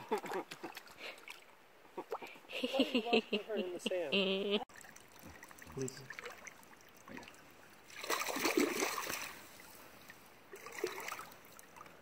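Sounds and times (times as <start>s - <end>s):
water splashing from wading: 4.7s - 12.0s.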